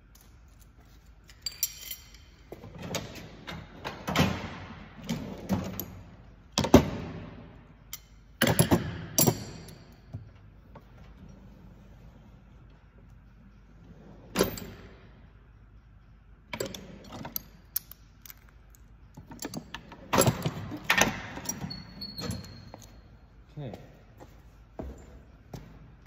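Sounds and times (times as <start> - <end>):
metal tools clanking: 1.2 - 3.2, 19.2 - 23.1.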